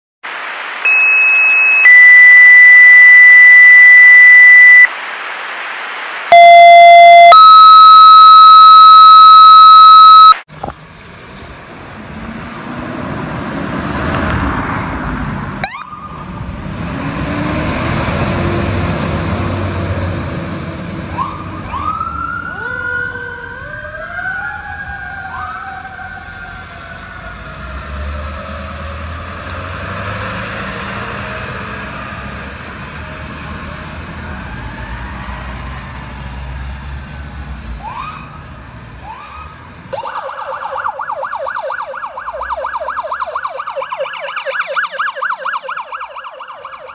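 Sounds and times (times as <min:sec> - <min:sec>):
sirens wailing: 0:00.8 - 0:04.9, 0:06.3 - 0:10.5, 0:15.6 - 0:16.6, 0:17.2 - 0:46.9
two-tone paging tones: 0:06.3 - 0:10.4
fire engine diesel rumbling: 0:06.3 - 0:46.9.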